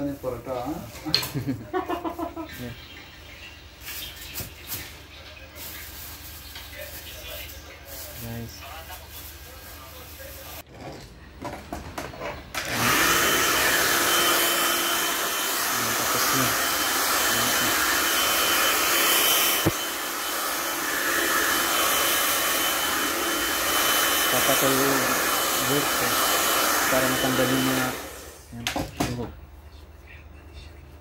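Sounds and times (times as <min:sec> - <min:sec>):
hair dryer running with whine: 0:12.6 - 0:28.5.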